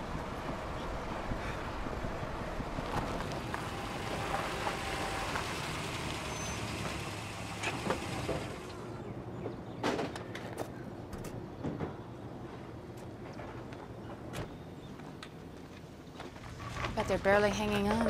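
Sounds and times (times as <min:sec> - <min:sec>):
vehicle running on road: 0:00.0 - 0:10.1.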